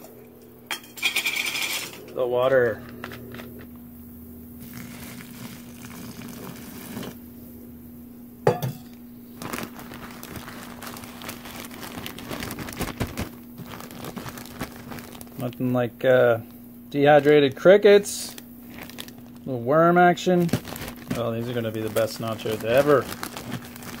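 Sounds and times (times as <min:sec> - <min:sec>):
hot water pouring into bag: 0:04.6 - 0:07.2, 0:09.4 - 0:15.8, 0:17.0 - 0:24.0
plastic bag crinkling: 0:09.3 - 0:24.0.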